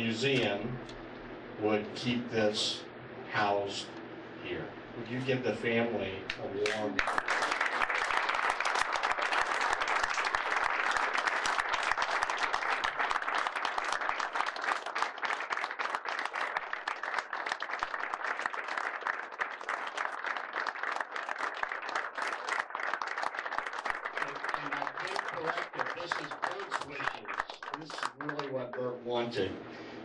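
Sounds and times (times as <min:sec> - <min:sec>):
audience applauding: 0:06.6 - 0:29.0.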